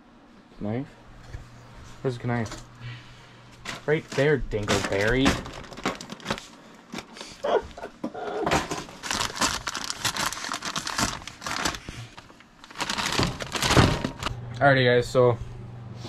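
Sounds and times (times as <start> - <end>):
plastic chip bag crinkling: 3.6 - 7.4, 8.7 - 14.3.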